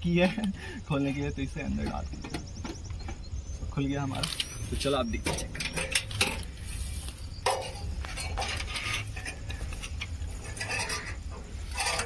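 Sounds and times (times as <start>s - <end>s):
metal rod clinking in fuel tank: 4.2s - 6.6s, 7.4s - 12.0s.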